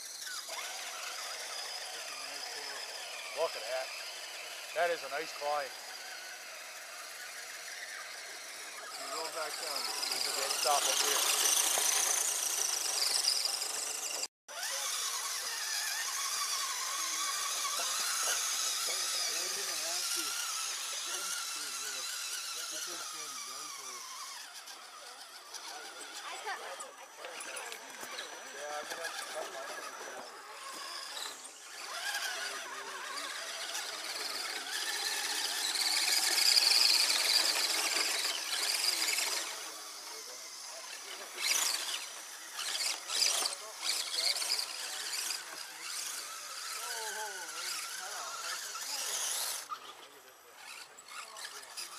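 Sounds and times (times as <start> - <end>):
electric motor whining: 0.0 - 51.9.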